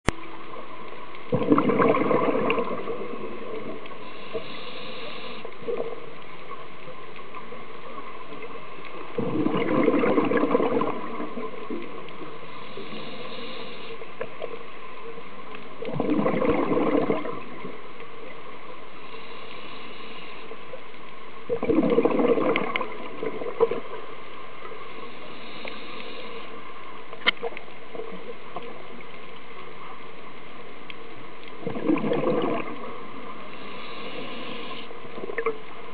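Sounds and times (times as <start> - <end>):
exhaled bubbles underwater: 1.3 - 6.6, 7.4 - 13.8, 15.8 - 17.9, 21.4 - 26.4, 31.5 - 35.9
regulator inhalation hiss: 4.0 - 5.5, 12.4 - 14.1, 19.0 - 20.6, 24.9 - 26.6, 33.5 - 34.9.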